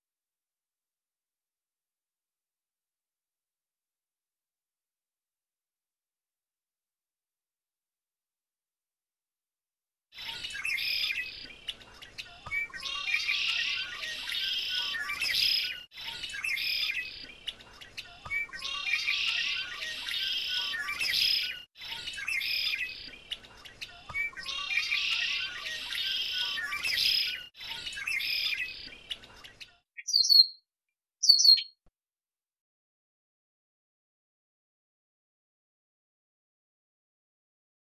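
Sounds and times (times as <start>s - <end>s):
blackbirds calling and singing: 10.2s - 30.6s, 31.2s - 31.7s.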